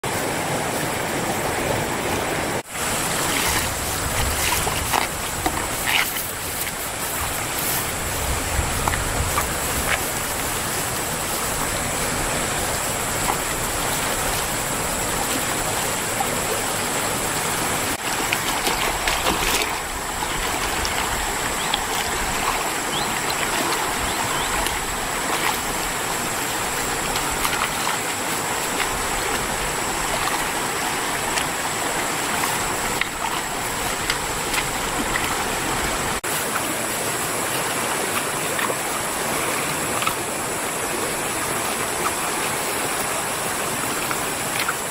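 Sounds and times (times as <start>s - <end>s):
river rushing: 0.0s - 44.9s.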